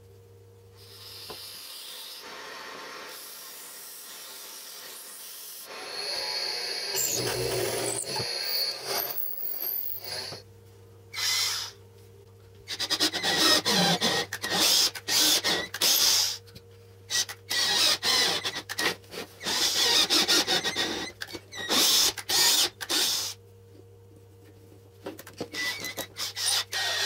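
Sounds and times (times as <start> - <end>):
cordless drill bursts: 5.7 - 10.4, 13.0 - 16.4, 19.5 - 21.0, 21.7 - 23.4, 25.6 - 27.0.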